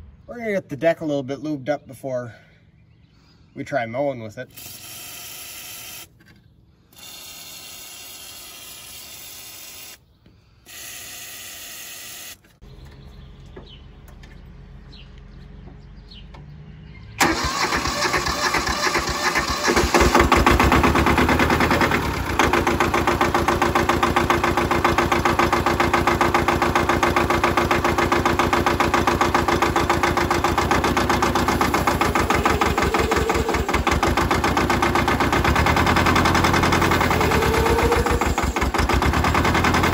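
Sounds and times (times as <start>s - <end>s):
diesel mower engine running: 12.6s - 39.9s.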